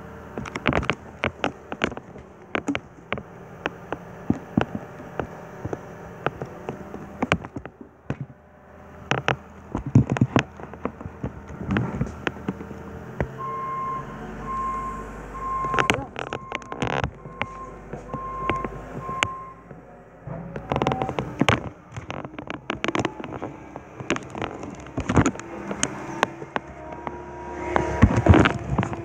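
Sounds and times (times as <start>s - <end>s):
diesel engine running: 0.0s - 29.0s
reversing alarm beeping: 13.3s - 19.7s.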